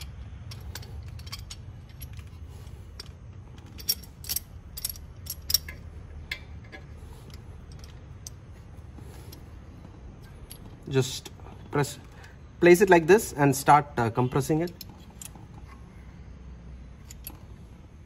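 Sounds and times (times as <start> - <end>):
metal clicks and clinks: 0.0 - 8.4, 14.5 - 15.8, 17.0 - 17.6.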